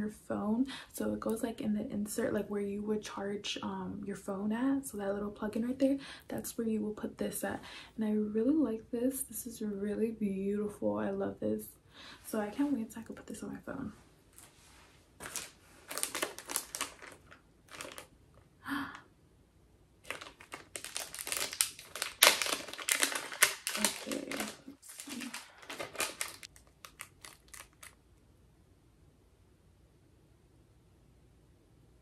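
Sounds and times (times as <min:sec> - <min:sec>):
plastic packaging crinkling: 0:15.2 - 0:18.2, 0:20.0 - 0:28.0.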